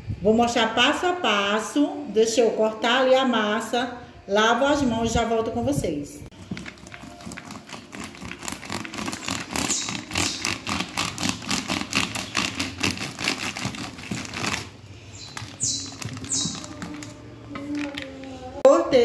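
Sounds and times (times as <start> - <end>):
plastic wrapper crinkling: 6.3 - 18.6
knife sawing through dough: 7.4 - 14.6.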